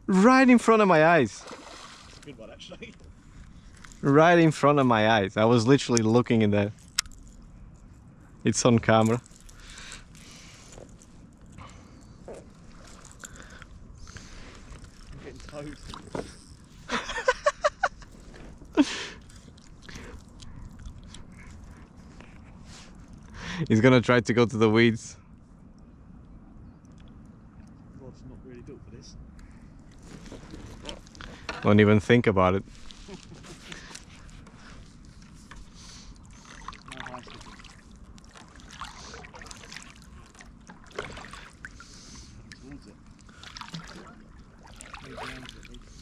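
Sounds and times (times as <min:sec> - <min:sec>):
water splashing and trickling: 0:00.2 - 0:05.8, 0:08.5 - 0:17.3, 0:32.7 - 0:46.0.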